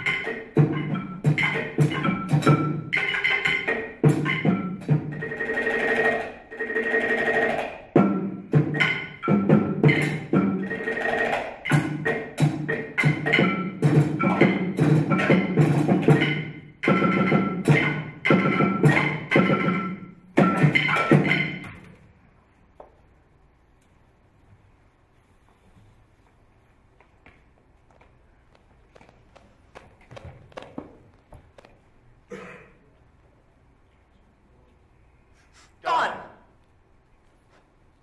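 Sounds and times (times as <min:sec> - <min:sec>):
quick dense percussion strikes: 0:00.0 - 0:21.8
drum rolls: 0:00.0 - 0:22.2.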